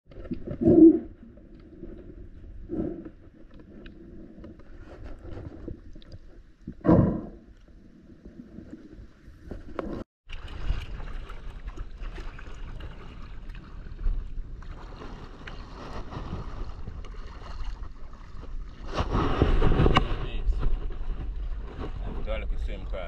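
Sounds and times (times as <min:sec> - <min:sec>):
water sloshing: 0:07.5 - 0:23.0.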